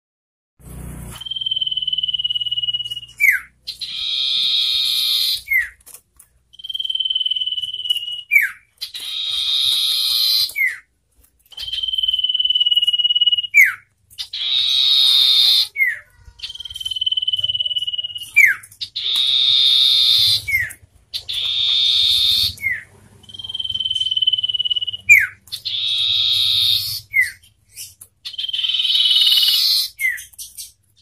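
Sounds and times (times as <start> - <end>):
bird buzzy chatter: 1.0 - 5.9, 6.6 - 10.9, 11.5 - 31.0
bird whistling call: 1.2 - 5.8, 11.6 - 30.8.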